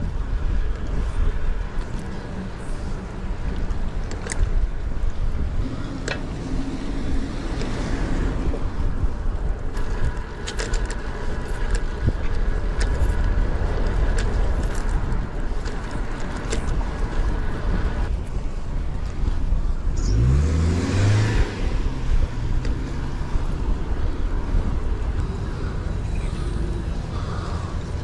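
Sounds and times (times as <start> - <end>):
wind and road noise: 0.0 - 28.0.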